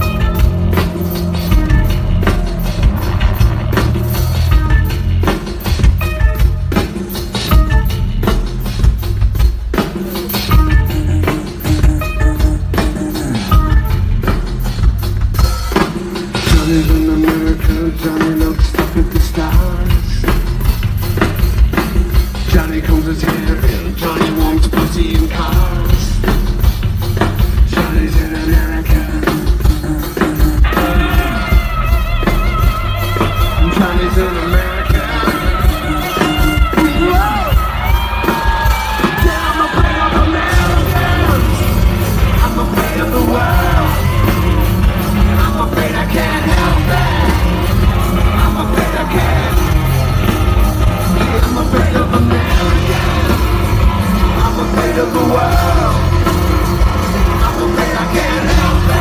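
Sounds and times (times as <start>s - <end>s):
driving drum beat: 0.0s - 59.0s
rock band playing: 0.0s - 59.0s
man singing into microphone: 16.4s - 20.4s, 22.4s - 26.4s, 27.7s - 31.6s, 33.6s - 37.5s, 39.0s - 44.2s, 45.2s - 50.0s, 51.1s - 56.3s, 57.2s - 59.0s.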